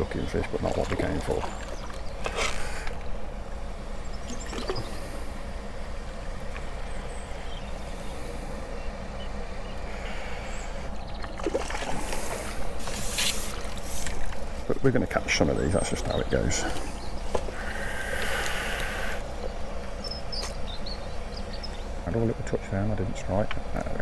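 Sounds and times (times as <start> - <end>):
motorway traffic rumble: 0.0 - 24.0
pond aerator: 0.0 - 24.0
water splashing: 0.4 - 2.5, 11.2 - 14.5.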